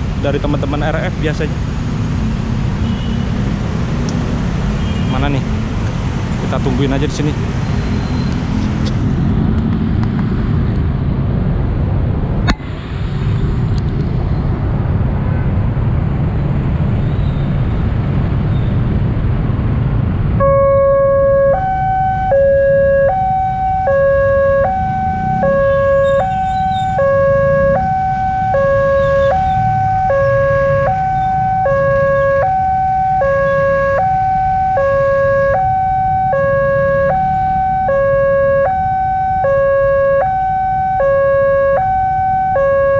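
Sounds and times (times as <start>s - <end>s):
road traffic noise: 0.0s - 42.9s
level crossing two-tone alarm: 20.4s - 42.9s.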